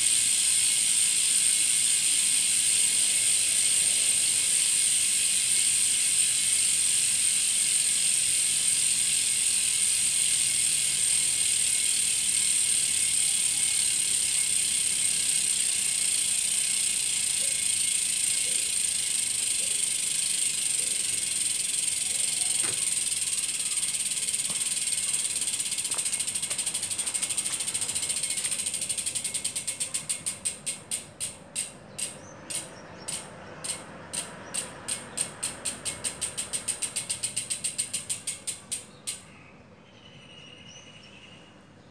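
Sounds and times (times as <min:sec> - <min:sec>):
bicycle freehub buzzing clicks: 0:00.0 - 0:39.4.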